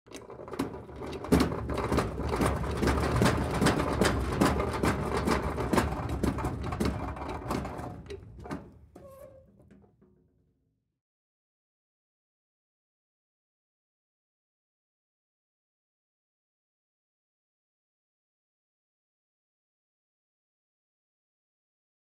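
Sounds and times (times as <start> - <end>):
tool chest rolling on casters: 0.1 - 9.9.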